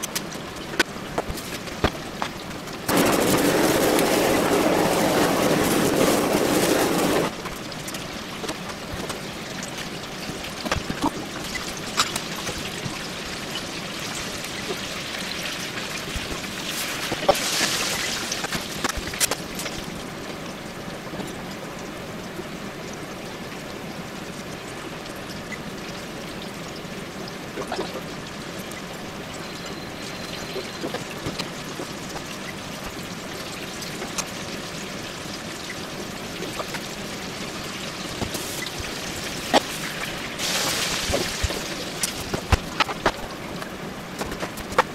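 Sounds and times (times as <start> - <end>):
watery hiss with crackles: 1.3 - 20.0, 36.1 - 43.7
blowtorch burning: 2.9 - 7.4.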